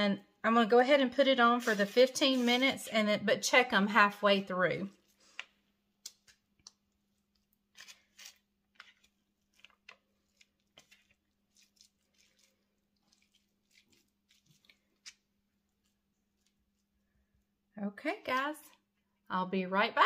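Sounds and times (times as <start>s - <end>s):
hands squishing food mix: 4.9s - 17.3s.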